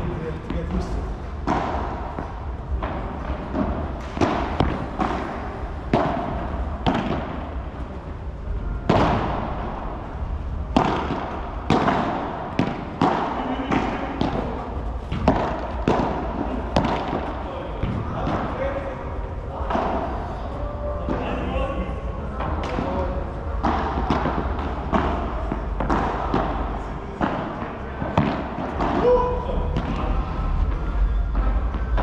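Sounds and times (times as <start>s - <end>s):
ball struck by rackets: 1.4s - 7.6s, 8.8s - 9.7s, 10.7s - 18.5s, 23.6s - 30.0s
ball bouncing on court: 5.9s - 7.4s.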